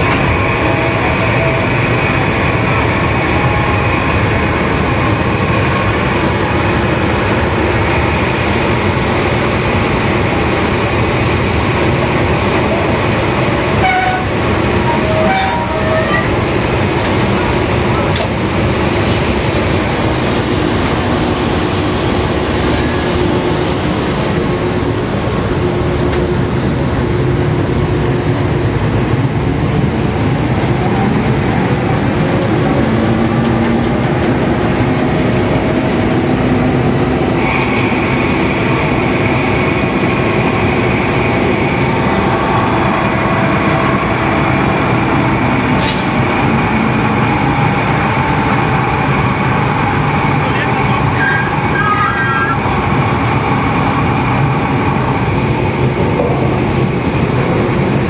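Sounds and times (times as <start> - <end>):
drilling rig machinery din: 30.5 - 58.0.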